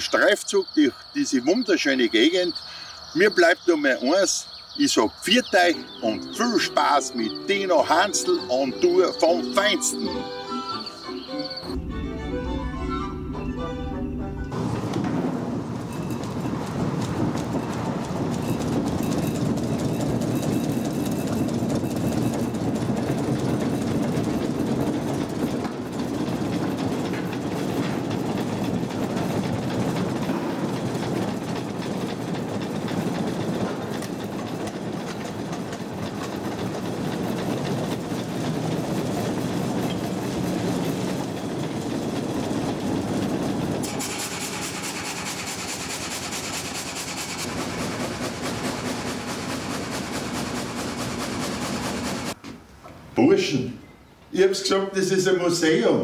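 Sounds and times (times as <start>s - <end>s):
frame saw clattering: 14.5s - 52.4s.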